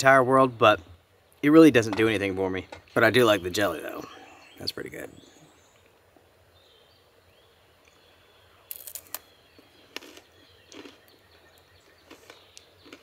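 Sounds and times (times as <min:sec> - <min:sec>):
faint bird chirps: 0:03.3 - 0:13.0
food packaging crackling: 0:08.7 - 0:11.1.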